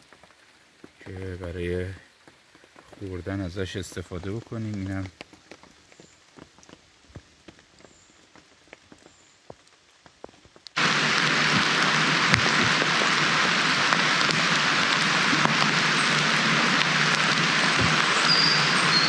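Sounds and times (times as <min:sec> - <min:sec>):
steady loud rain: 0:00.0 - 0:19.0.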